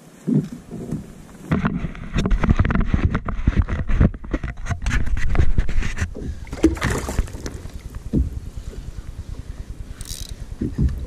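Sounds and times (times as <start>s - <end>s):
knocks and scrapes on plastic kayak: 0.2s - 8.4s.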